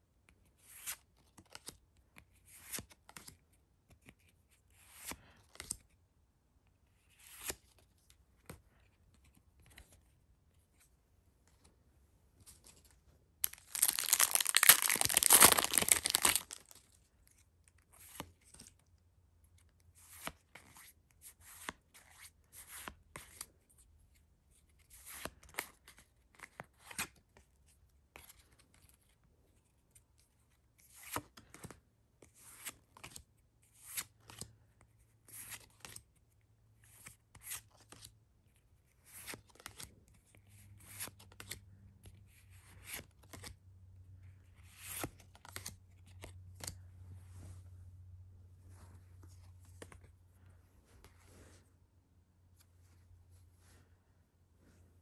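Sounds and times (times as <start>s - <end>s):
foil wrapper tearing: 13.4s - 16.8s.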